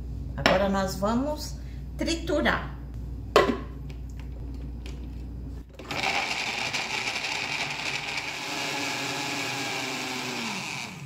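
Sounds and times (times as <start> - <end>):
blender grinding vegetables: 5.7 - 11.0.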